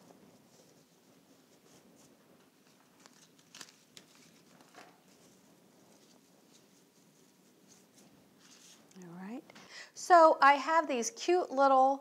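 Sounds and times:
flower stems rustling and clicking: 0:02.4 - 0:05.3.

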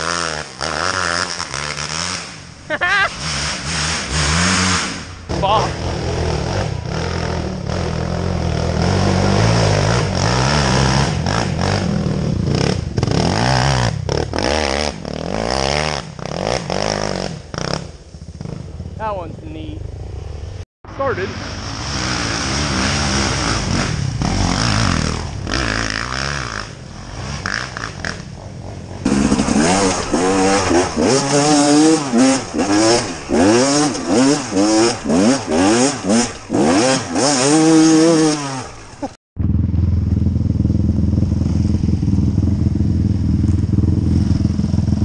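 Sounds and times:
dirt bike engine revving: 0:00.0 - 0:28.4, 0:29.0 - 0:45.0
steady engine hum: 0:16.0 - 0:45.0.

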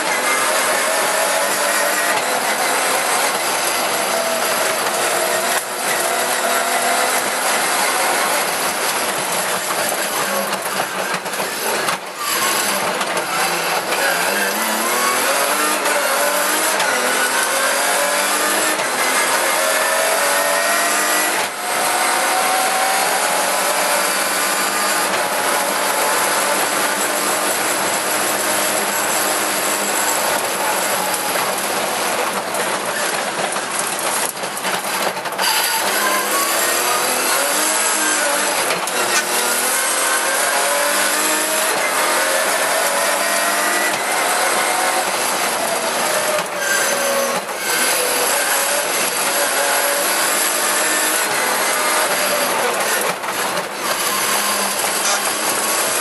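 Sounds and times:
car engine revving: 0:00.0 - 0:56.0
knocks and rattles: 0:28.1 - 0:39.9.

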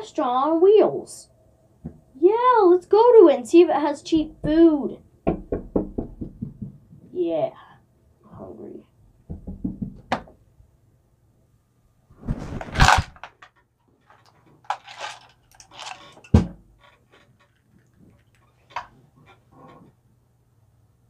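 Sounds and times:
plastic toys rustling and knocking: 0:12.2 - 0:19.9.

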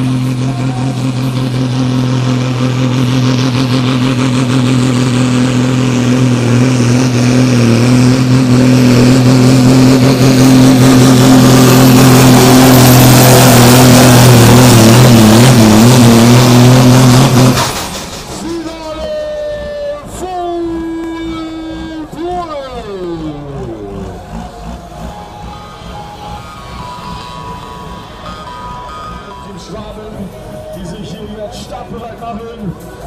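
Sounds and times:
tractor engine at full throttle: 0:00.0 - 0:33.0.

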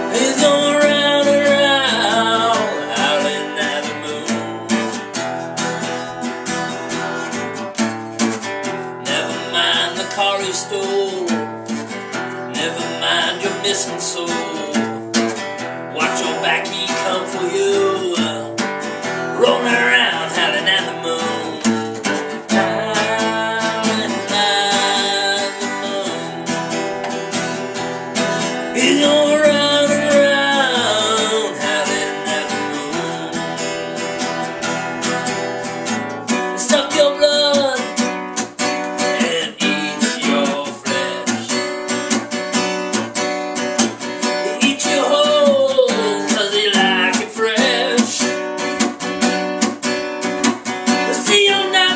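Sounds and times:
man singing: 0:00.0 - 0:05.3, 0:09.0 - 0:15.2, 0:15.9 - 0:41.8, 0:44.2 - 0:48.8, 0:50.9 - 0:51.9
acoustic guitar strumming: 0:00.0 - 0:51.9.

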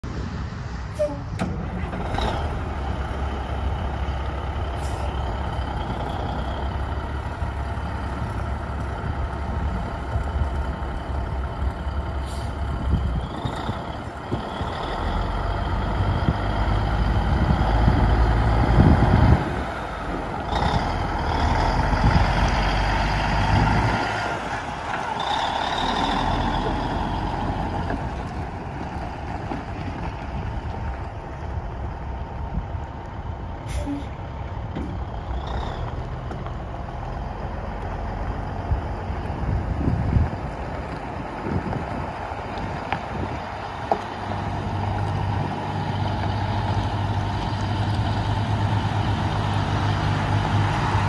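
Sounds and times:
diesel truck engine running: 0:00.0 - 0:51.0
tyres on gravel: 0:33.8 - 0:51.0.

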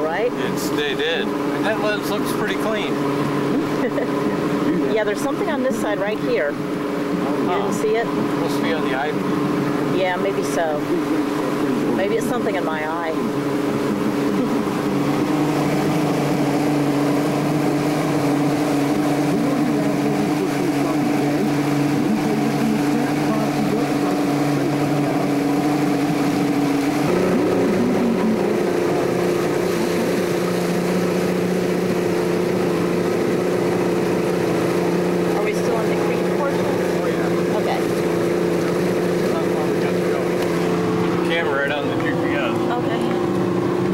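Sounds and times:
outboard motor running: 0:00.0 - 0:43.9.

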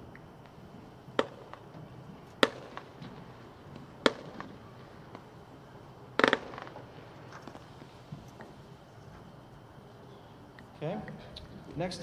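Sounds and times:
fireworks sharp reports: 0:00.7 - 0:08.0.

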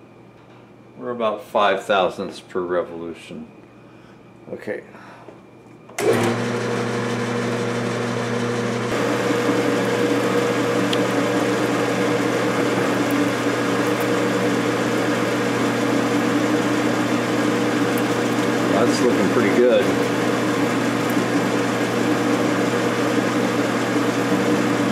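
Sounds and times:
metal lathe running: 0:06.0 - 0:24.9.

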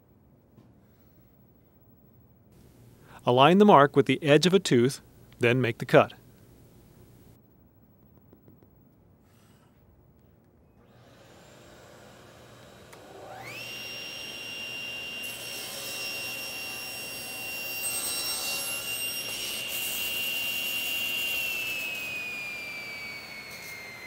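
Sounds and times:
table saw motor whine: 0:10.8 - 0:24.0
saw blade cutting wood: 0:13.3 - 0:24.0.

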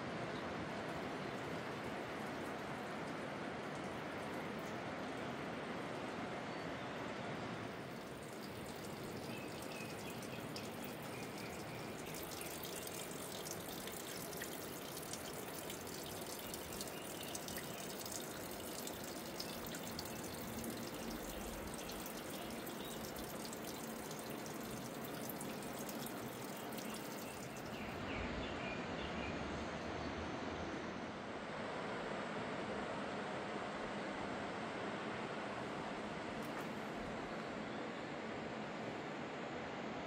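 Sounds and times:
water dripping and trickling: 0:00.2 - 0:28.0, 0:36.4 - 0:37.2.

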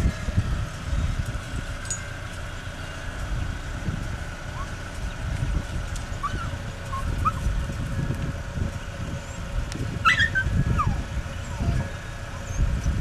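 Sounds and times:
wind rumbling on microphone: 0:00.0 - 0:13.0
dog whimpering: 0:06.2 - 0:07.5, 0:10.0 - 0:12.7.

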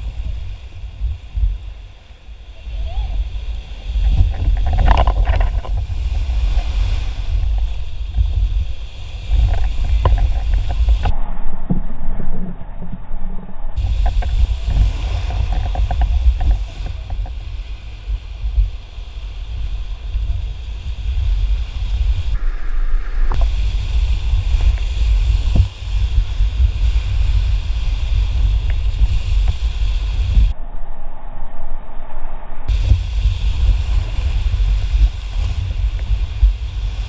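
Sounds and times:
whitewater rushing and splashing: 0:00.0 - 0:11.1, 0:13.8 - 0:22.6, 0:32.7 - 0:37.0
wind buffeting microphone: 0:00.0 - 0:37.0.

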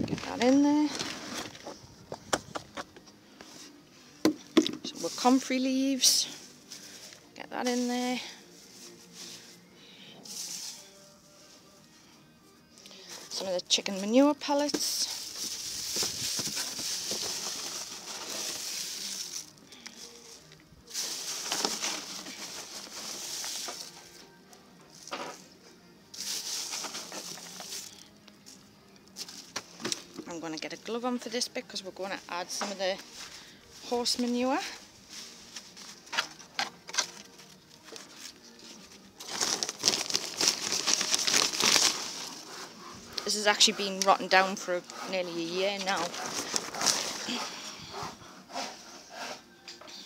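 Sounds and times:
plastic sacks rustling: 0:00.0 - 0:01.9, 0:13.0 - 0:24.2, 0:26.1 - 0:28.2, 0:32.5 - 0:43.4, 0:45.4 - 0:47.8
pellets pattering into a plastic bucket: 0:14.8 - 0:19.6, 0:20.9 - 0:23.9, 0:26.2 - 0:27.9, 0:39.2 - 0:42.4.

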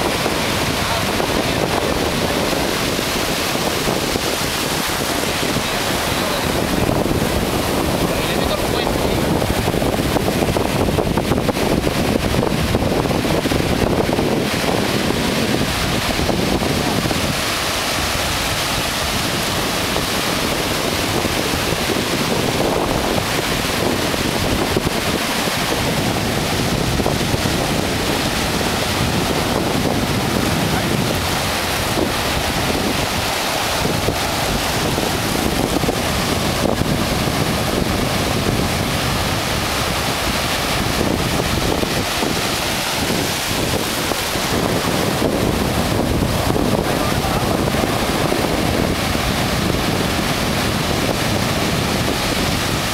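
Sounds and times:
surf breaking on sandy beach: 0:00.0 - 0:52.9
wind buffeting microphone: 0:00.0 - 0:52.9.

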